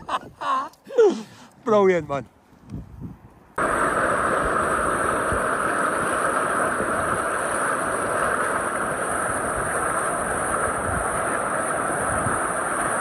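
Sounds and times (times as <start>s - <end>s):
wind noise: 2.5s - 13.0s
water rushing in boat wake: 3.6s - 13.0s.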